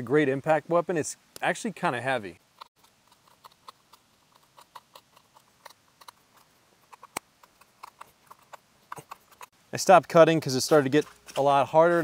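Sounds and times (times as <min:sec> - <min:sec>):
knife clicking through rope: 0:02.6 - 0:09.5.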